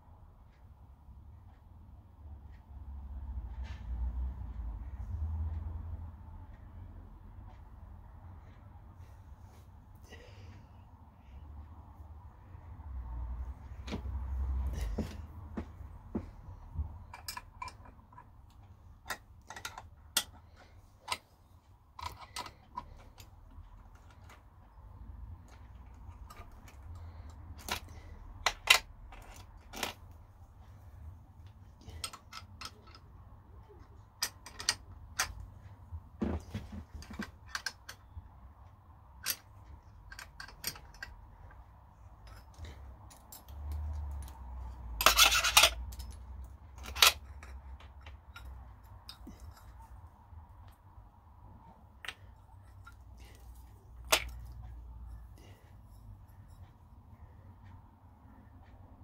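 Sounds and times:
metal clatter: 0:45.0 - 0:46.2
spanner clinking on steel table: 0:45.0 - 0:46.2.

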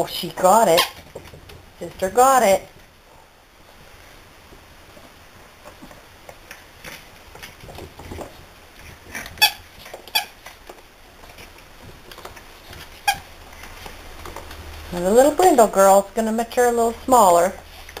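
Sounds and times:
puppies scuffling and rattling: 0:06.6 - 0:14.9.

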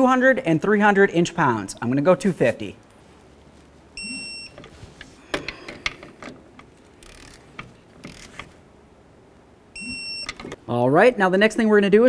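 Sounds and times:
torque wrench beep: 0:04.0 - 0:04.6, 0:09.8 - 0:10.4.

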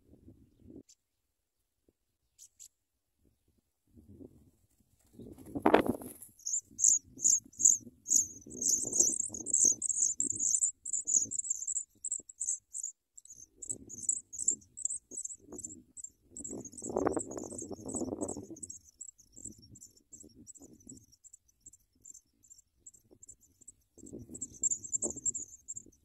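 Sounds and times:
nestlings peeping: 0:05.9 - 0:26.0.

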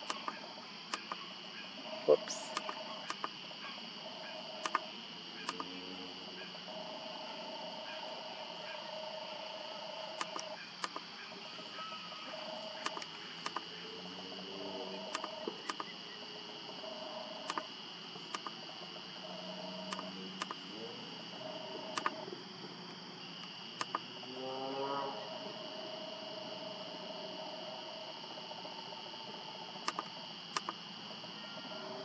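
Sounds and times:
sharp clicks: 0:00.0 - 0:01.3, 0:02.2 - 0:03.4, 0:04.6 - 0:05.8, 0:10.2 - 0:11.1, 0:12.3 - 0:13.8, 0:15.1 - 0:16.0, 0:17.4 - 0:17.7, 0:18.3 - 0:18.6, 0:19.8 - 0:20.6, 0:21.9 - 0:22.2, 0:23.4 - 0:24.1, 0:29.8 - 0:30.8
high-pitched trilling night chorus: 0:00.0 - 0:32.0.

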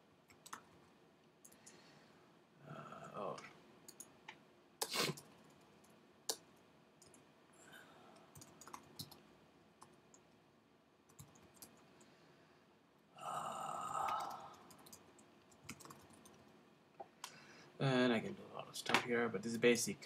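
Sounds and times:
computer keyboard and mouse clicks: 0:00.3 - 0:00.7, 0:08.3 - 0:09.2, 0:11.1 - 0:12.1, 0:14.1 - 0:16.4.

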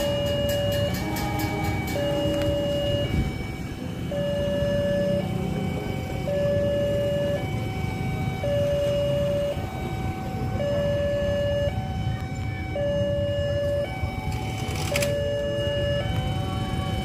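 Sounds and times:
diesel locomotive rumble: 0:00.0 - 0:17.0
two-tone electronic siren: 0:00.0 - 0:17.0.

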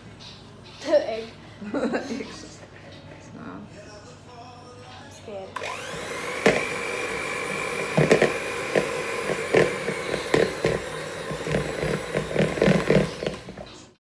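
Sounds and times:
electric hand mixer whining: 0:05.6 - 0:13.8
beaters scraping bowl: 0:05.6 - 0:14.0.

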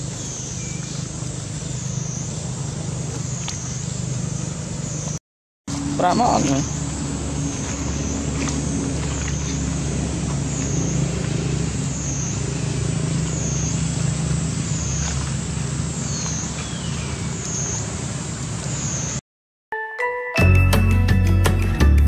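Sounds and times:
low engine-like rumble: 0:00.0 - 0:19.2
high pulsing drone: 0:05.7 - 0:15.9.

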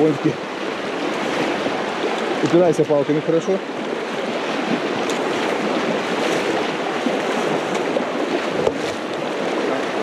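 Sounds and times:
river rushing over stones: 0:00.0 - 0:10.0.

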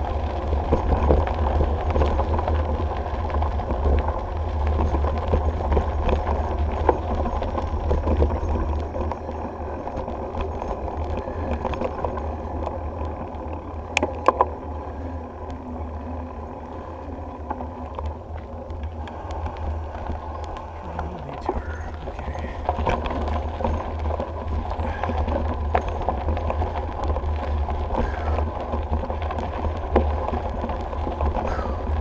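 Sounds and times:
bike rattling over bumps: 0:00.0 - 0:32.0
bike tyres rolling on gravel: 0:00.0 - 0:32.0
wind rumble on camera: 0:00.0 - 0:32.0.

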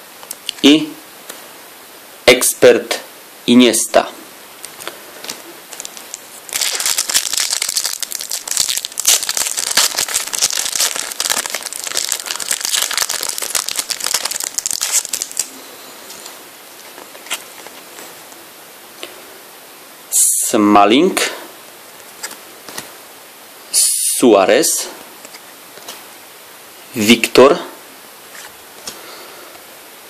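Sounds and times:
card packet crinkling: 0:04.6 - 0:18.0.

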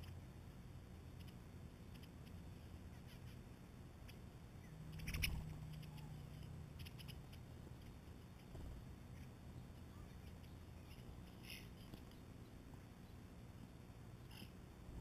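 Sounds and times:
birds pecking clicks: 0:01.1 - 0:02.4, 0:04.9 - 0:12.3
wings fluttering: 0:01.1 - 0:12.3.

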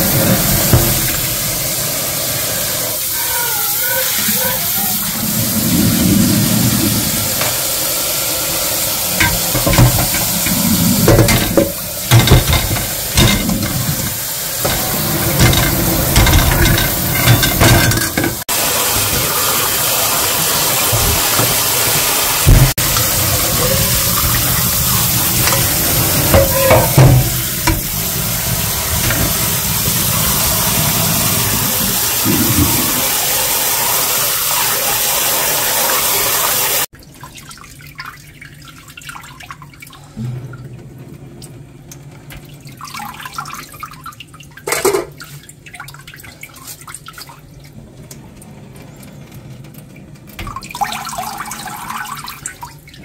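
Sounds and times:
water trickling: 0:00.0 - 0:34.0, 0:36.9 - 0:53.0
water splashes: 0:00.0 - 0:41.5
tap running into steel sink: 0:09.2 - 0:18.4, 0:22.4 - 0:28.1, 0:29.0 - 0:30.0.

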